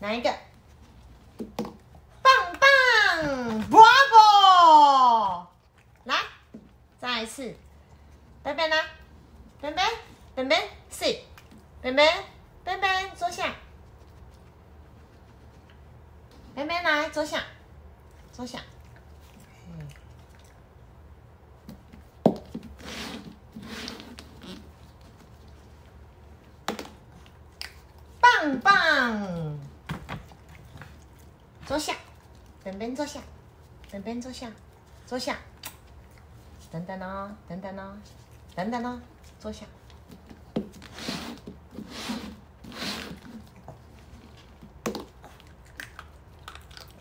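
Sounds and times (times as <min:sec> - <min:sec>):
dog scuffling among cups: 0:21.8 - 0:26.0, 0:39.9 - 0:45.2
cups sliding across floor: 0:22.6 - 0:24.7, 0:40.7 - 0:43.4.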